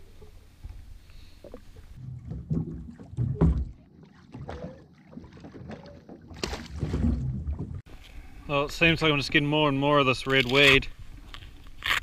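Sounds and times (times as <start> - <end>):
low thumps: 1.5 - 3.8, 6.4 - 7.9.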